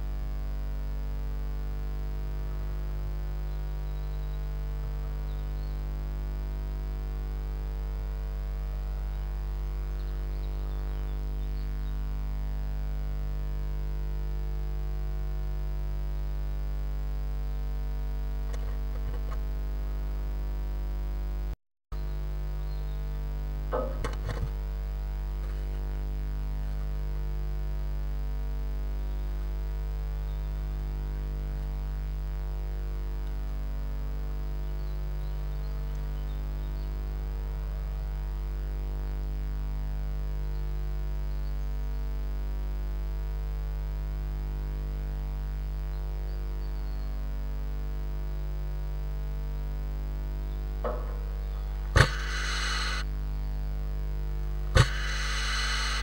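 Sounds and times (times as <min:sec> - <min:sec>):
electrical mains hum: 0:00.0 - 0:56.0
hissy rush: 0:54.8 - 0:56.0.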